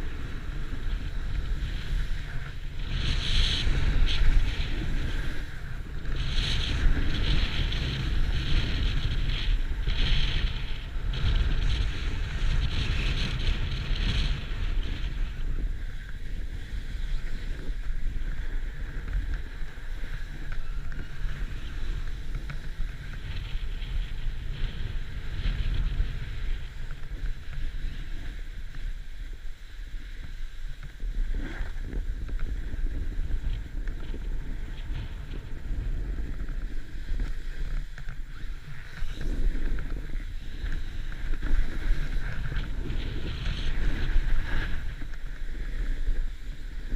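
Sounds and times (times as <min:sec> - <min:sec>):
snowboard scraping over snow: 0:00.0 - 0:46.9
wind buffeting microphone: 0:00.0 - 0:46.9.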